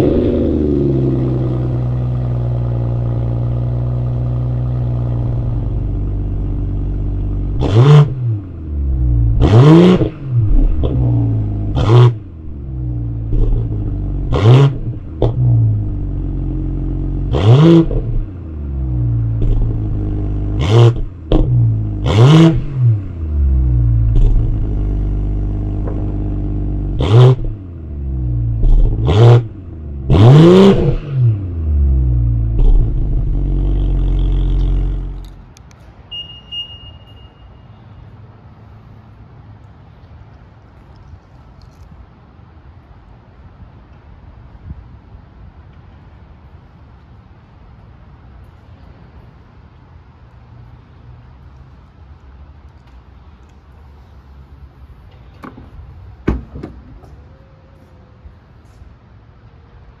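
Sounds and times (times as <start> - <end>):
car engine idling and revving: 0.0 - 36.3.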